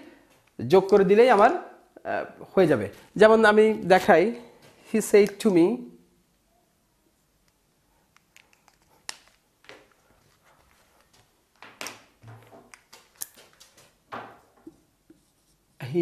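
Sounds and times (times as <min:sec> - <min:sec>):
markers clicking and tapping: 0:11.8 - 0:15.6
marker scratching on whiteboard: 0:14.7 - 0:16.0.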